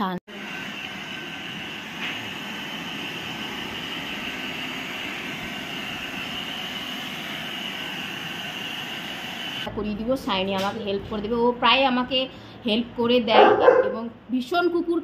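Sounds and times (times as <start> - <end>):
hair dryer blowing: 0.3 - 9.7.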